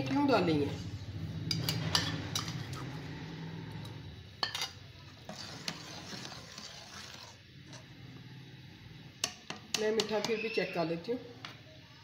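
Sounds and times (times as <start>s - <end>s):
metal ladle scraping steel pot: 1.4s - 3.1s, 4.4s - 7.9s.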